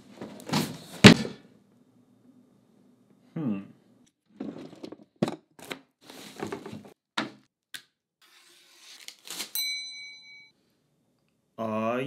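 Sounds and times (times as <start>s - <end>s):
knife tearing open cardboard box: 8.7s - 9.6s
ringing metallic tone: 9.6s - 10.6s.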